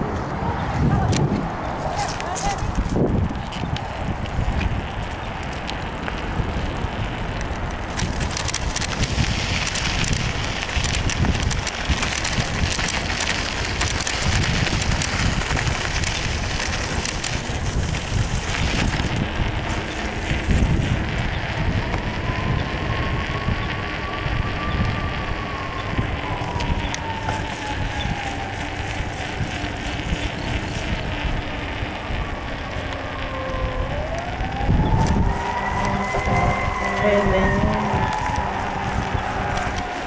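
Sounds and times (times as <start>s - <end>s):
bicycle rattles and clicks: 0.0s - 40.0s
wind buffeting microphone: 0.0s - 40.0s
tyres crunching on dirt: 0.1s - 22.2s.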